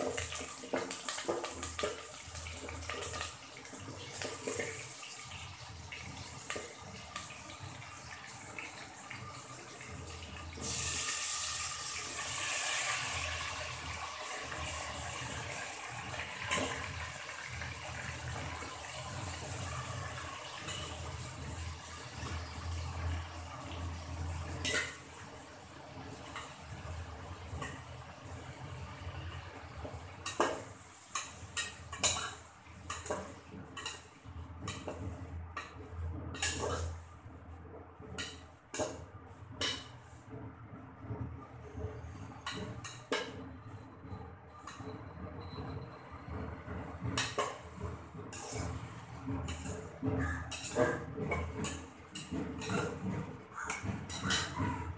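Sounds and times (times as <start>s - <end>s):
tomatoes sizzling in hot oil: 0.0s - 34.9s
metal spoon clanking on pot: 18.5s - 22.3s, 24.6s - 25.2s, 30.2s - 37.0s, 38.1s - 40.0s, 42.4s - 43.7s, 44.6s - 45.5s, 47.0s - 54.9s.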